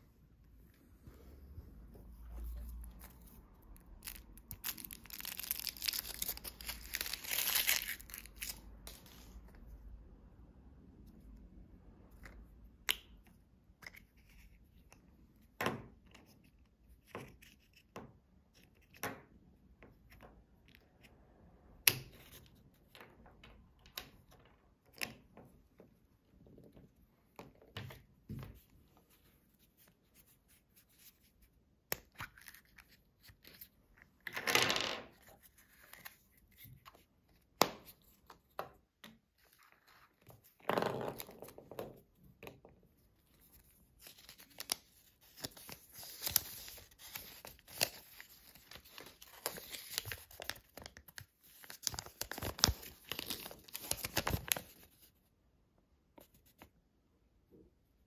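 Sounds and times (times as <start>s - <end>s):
paper leaflet crackling: 4.0s - 9.3s, 44.0s - 54.8s
paper rustling: 44.0s - 55.1s.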